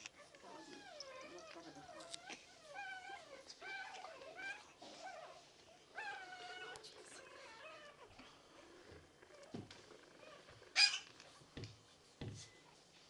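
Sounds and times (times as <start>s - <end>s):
puppies whining: 0.0s - 8.4s.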